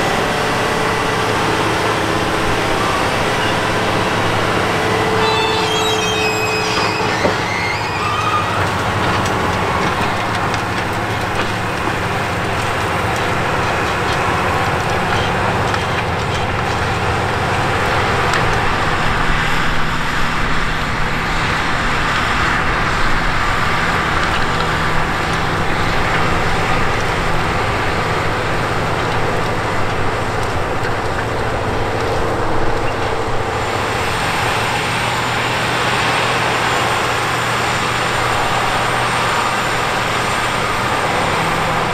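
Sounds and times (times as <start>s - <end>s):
tractor diesel engine under load: 0.0s - 41.9s.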